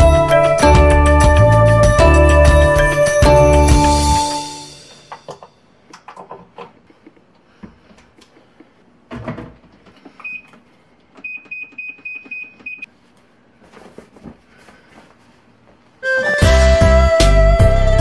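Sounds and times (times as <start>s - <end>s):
washing machine beeping: 10.2s - 10.6s, 11.2s - 12.9s.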